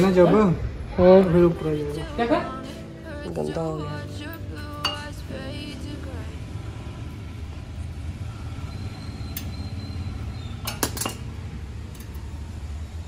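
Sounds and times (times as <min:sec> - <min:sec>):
metallic clinks and taps: 0:10.6 - 0:11.3, 0:11.9 - 0:12.3.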